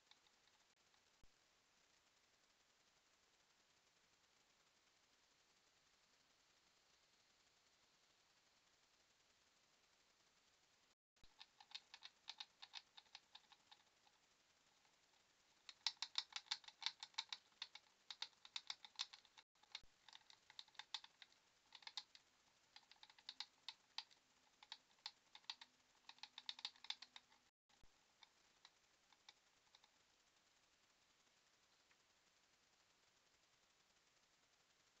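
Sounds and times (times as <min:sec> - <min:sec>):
mice clicking and scratching: 0:00.0 - 0:01.1, 0:11.2 - 0:30.0.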